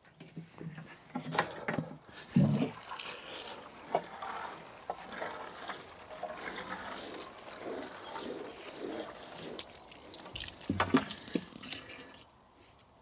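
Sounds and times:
water sprinkling onto compost: 2.5s - 12.2s.

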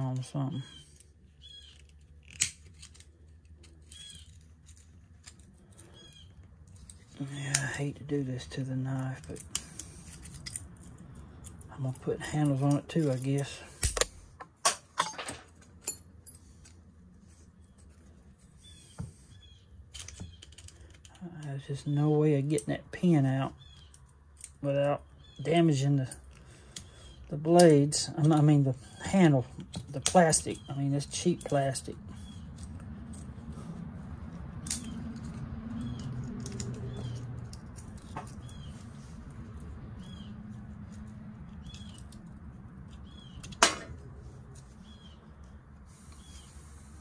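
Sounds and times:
faint squeaky chirps: 0.5s - 1.9s, 3.8s - 4.8s, 5.7s - 6.4s, 17.4s - 22.1s.

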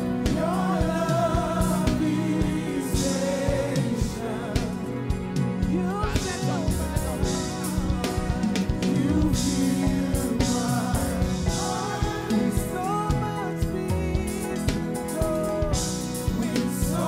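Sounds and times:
band playing: 0.0s - 17.0s
drum kit steady hits: 0.0s - 17.0s
person singing: 0.0s - 17.0s.

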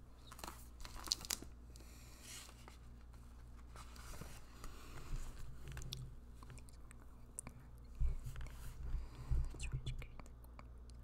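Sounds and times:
mouth clicks and lip smacks: 5.8s - 8.5s, 9.5s - 11.0s.

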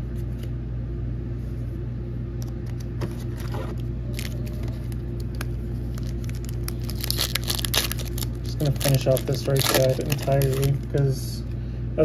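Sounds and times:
steady low hum: 0.0s - 12.0s
foil pack crinkling: 3.1s - 11.2s.

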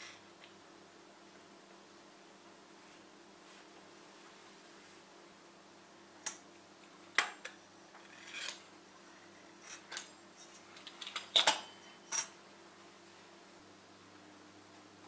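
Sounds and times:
metal ruler clacks and scrapes: 8.0s - 8.7s.

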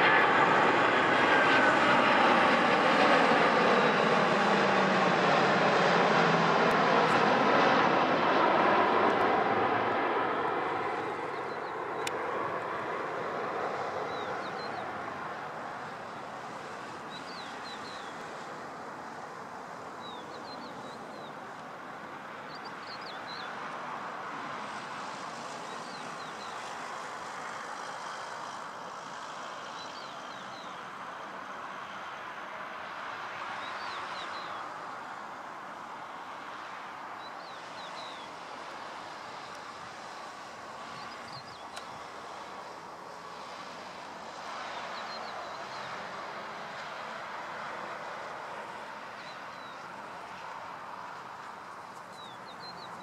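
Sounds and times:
jet engines of passing airliner: 0.0s - 53.0s.

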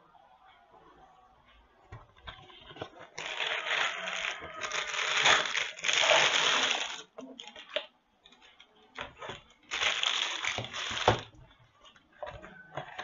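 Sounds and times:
plastic bag crinkling: 2.3s - 7.8s, 9.3s - 11.4s.

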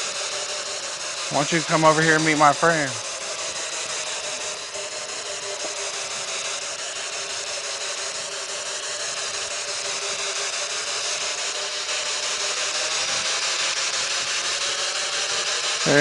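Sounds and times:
radio static hiss: 1.3s - 3.0s.

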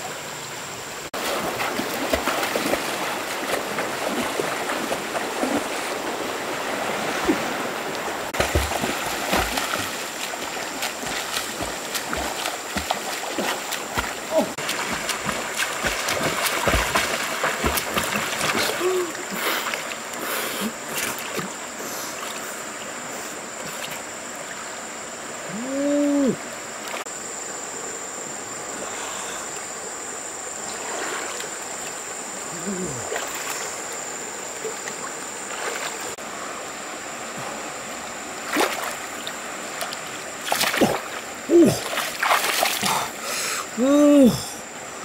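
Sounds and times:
river water sloshing: 0.0s - 25.6s, 26.4s - 45.0s
fish thrashing splashes: 8.4s - 18.9s, 40.4s - 43.0s.

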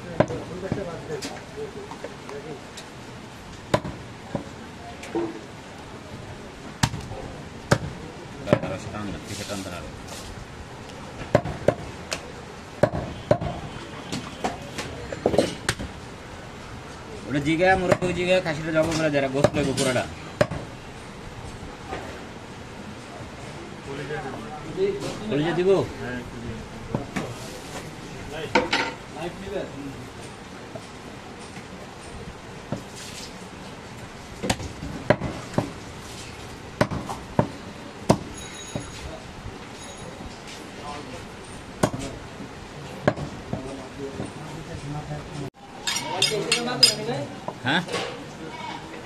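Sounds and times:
cleaver chopping meat and bone: 3.7s - 4.5s, 7.7s - 8.7s, 20.4s - 20.7s, 34.4s - 35.8s, 36.8s - 38.3s, 41.8s - 42.1s
cleaver chopping meat: 36.8s - 37.5s.

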